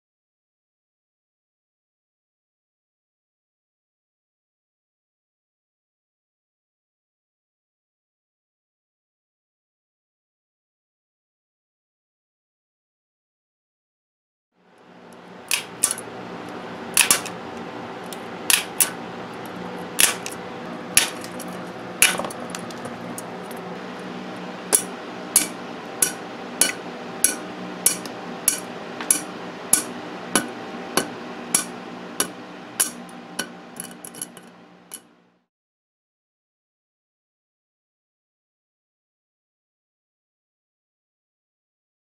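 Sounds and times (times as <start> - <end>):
steady hum: 14.6 - 35.4
tin snips snapping through plastic: 15.5 - 16.0, 17.0 - 17.4, 18.1 - 19.0, 20.0 - 20.4.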